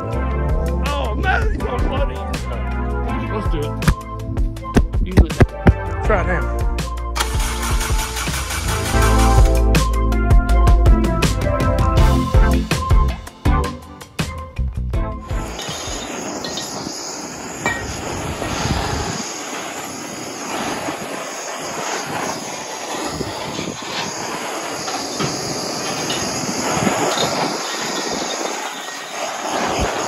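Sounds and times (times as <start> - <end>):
gas torch hissing: 7.2 - 10.0, 12.0 - 30.0.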